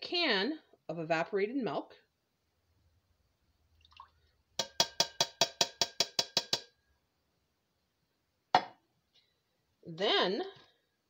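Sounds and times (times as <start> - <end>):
metal can knocking on ceramic rim: 4.6 - 6.7.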